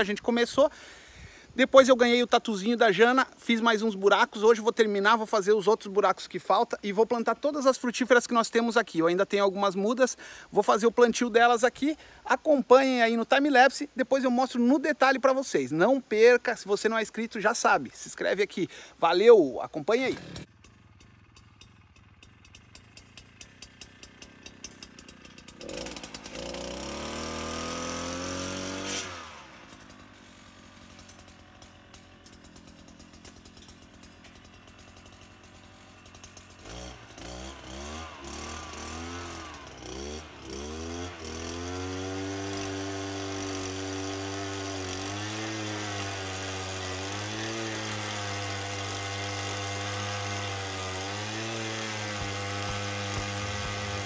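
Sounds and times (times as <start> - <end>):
engine sputtering: 20.0 - 28.3, 29.2 - 41.6, 52.1 - 54.0
small petrol engine revving: 20.1 - 54.0.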